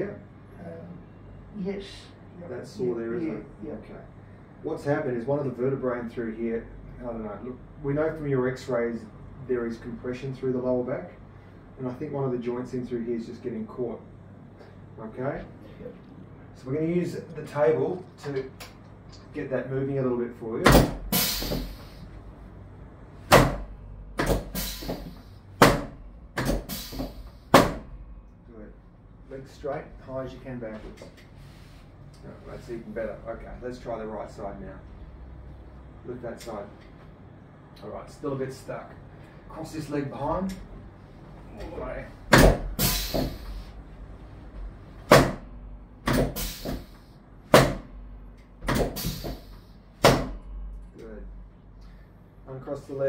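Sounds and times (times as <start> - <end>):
short hiss: 21.1 - 22.0, 24.5 - 25.4, 26.6 - 27.4, 42.8 - 43.7, 46.4 - 47.0, 48.9 - 49.7.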